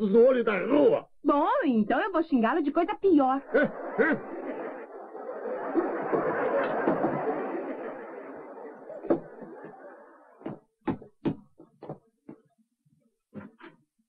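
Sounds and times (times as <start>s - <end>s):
audience laughter: 3.3s - 10.6s.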